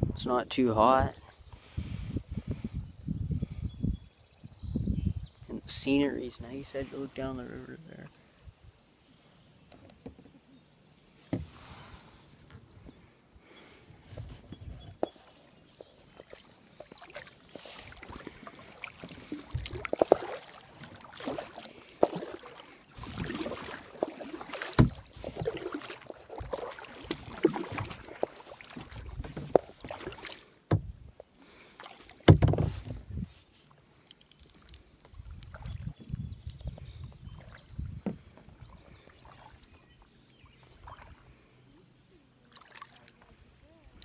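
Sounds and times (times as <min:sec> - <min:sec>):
kayak knocks and bumps: 0:11.3 - 0:11.7, 0:18.0 - 0:31.0, 0:32.2 - 0:33.2, 0:37.4 - 0:38.6
paddle splashing in water: 0:14.1 - 0:33.2, 0:37.2 - 0:41.5, 0:42.5 - 0:44.0.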